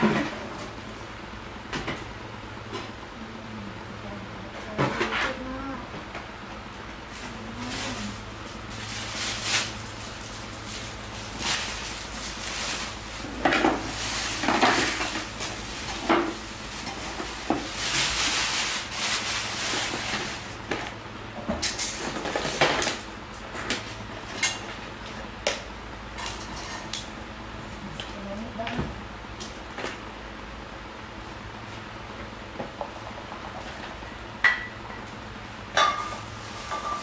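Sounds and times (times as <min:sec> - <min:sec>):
plastic bag rustling: 0:07.1 - 0:20.8
plastic containers clattering: 0:11.2 - 0:23.0.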